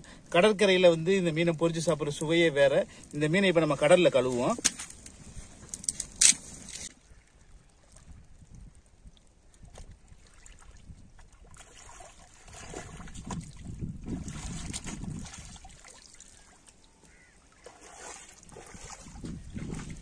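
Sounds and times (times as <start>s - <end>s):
water splashing and sloshing: 1.8s - 20.0s
wind rumble on microphone: 7.1s - 15.8s, 18.3s - 20.0s.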